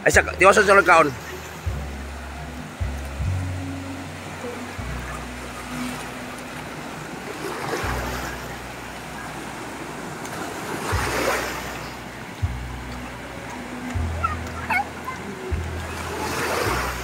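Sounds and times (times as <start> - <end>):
ocean surf washing onto beach: 0.0 - 17.0
waves breaking: 0.0 - 17.0
low rumble: 10.9 - 16.2.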